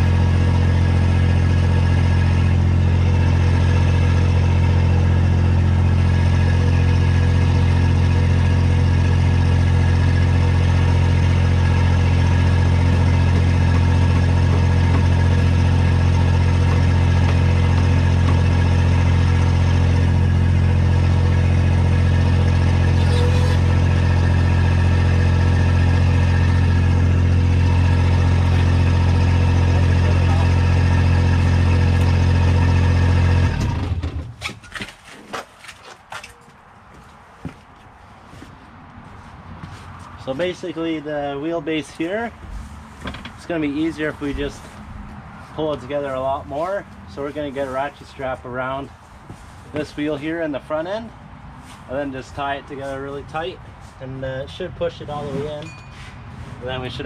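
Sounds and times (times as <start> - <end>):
diesel engine idling: 0.0 - 34.2, 40.2 - 51.2.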